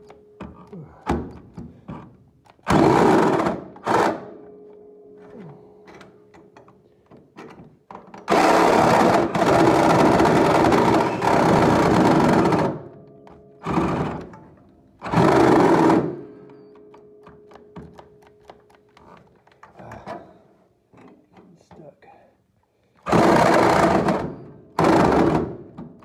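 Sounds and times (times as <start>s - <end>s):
faint clicks and knocks: 16.4s - 22.0s.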